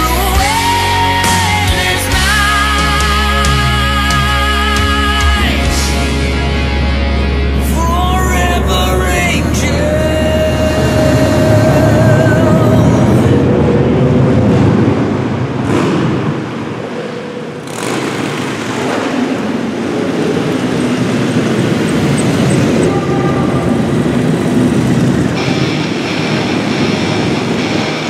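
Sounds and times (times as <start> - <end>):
motorcycles riding slowly past: 16.8 - 28.0.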